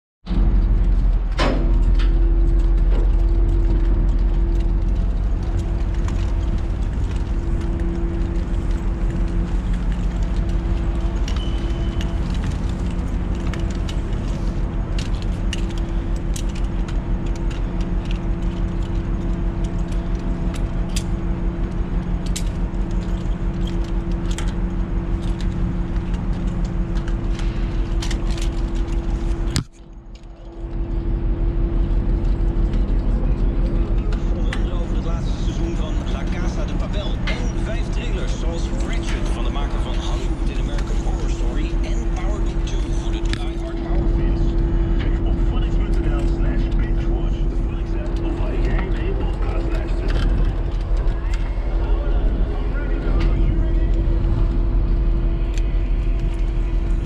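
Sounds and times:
ship machinery drone: 0.3s - 57.0s.

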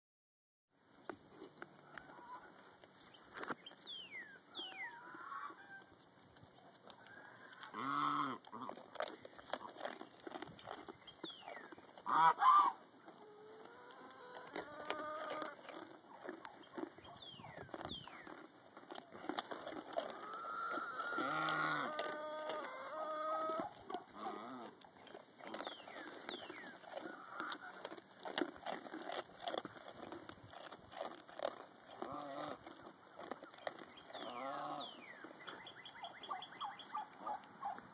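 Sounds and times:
goats munching treats: 0.8s - 37.9s
clicks and rustles of animals: 1.0s - 37.9s
farm animals calling: 1.3s - 37.9s
goat bleating: 7.2s - 8.9s, 12.0s - 15.8s, 20.0s - 24.8s.

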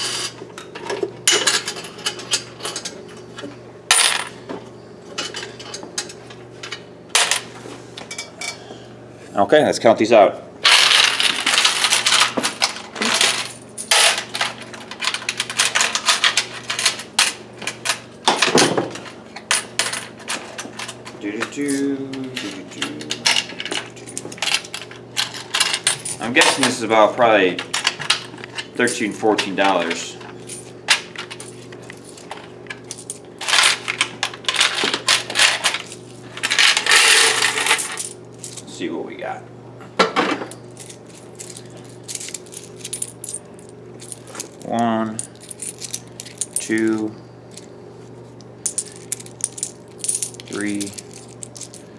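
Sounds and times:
faint steady hum: 0.0s - 51.9s
coins clinking: 3.9s - 4.3s, 10.6s - 18.0s, 21.6s - 26.8s, 28.8s - 38.7s, 40.6s - 47.7s, 48.6s - 51.9s
coins clinking and jingling: 40.7s - 46.9s, 48.6s - 51.9s.

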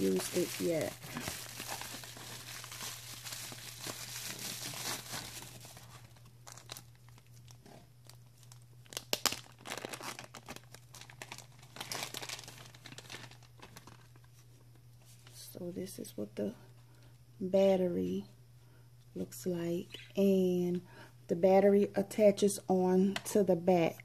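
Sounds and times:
bubble wrap and plastic crinkling: 0.0s - 15.4s.

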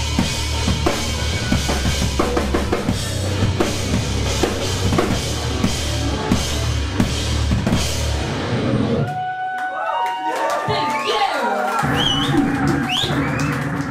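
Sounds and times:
distorted electric guitar: 0.0s - 9.0s
rock band playing: 0.0s - 9.2s
pounding drum kit: 0.0s - 9.3s, 11.8s - 13.9s.

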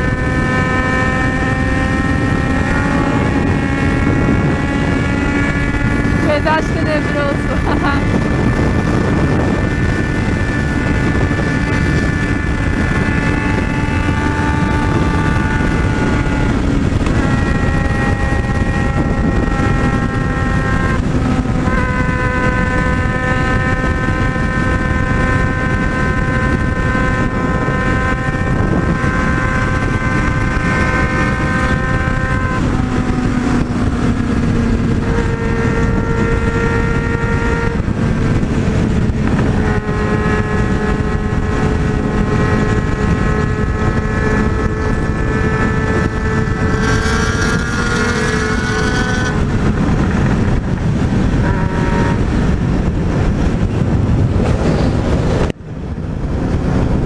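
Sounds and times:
motorcycle engine drone: 0.0s - 57.0s
steady tones changing pitch: 0.0s - 57.0s
wind rush: 0.0s - 57.0s.

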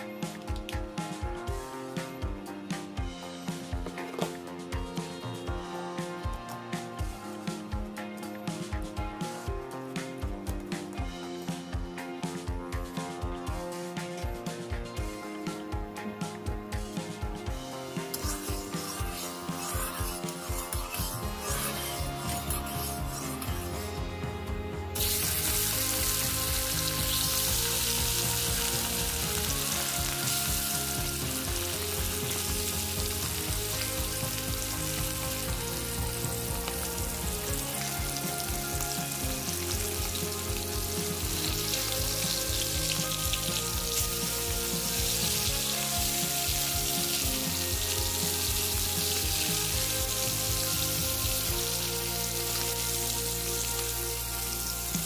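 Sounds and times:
fish sizzling in hot oil: 17.8s - 23.8s, 25.0s - 55.0s.

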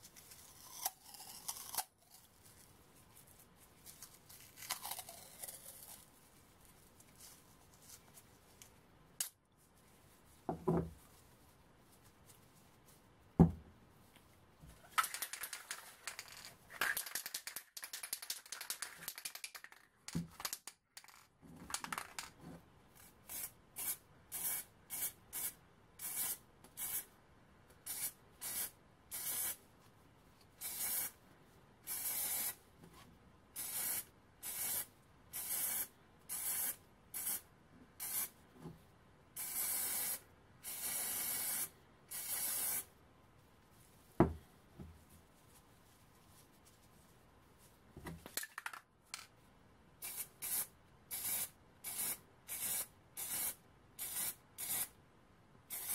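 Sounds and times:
rustling handling noise: 2.1s - 5.2s, 5.8s - 22.6s, 43.3s - 49.4s
spray paint can hissing: 15.0s - 19.8s, 27.9s - 29.6s, 30.6s - 31.1s, 31.9s - 32.6s, 33.6s - 37.4s, 38.0s - 38.3s, 39.4s - 42.9s, 50.0s - 54.9s.

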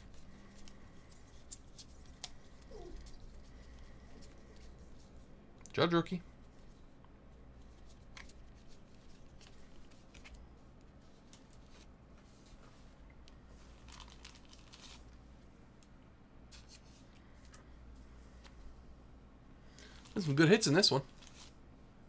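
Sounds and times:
trading cards rustling and clicking: 0.0s - 5.3s, 6.4s - 12.6s, 13.6s - 15.2s, 19.7s - 21.6s
low steady hum: 0.0s - 22.0s.

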